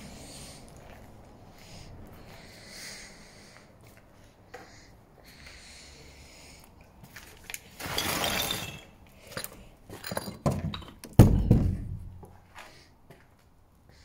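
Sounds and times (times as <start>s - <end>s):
scraping rustle: 7.2s - 9.0s
heavy thud: 11.2s - 12.2s.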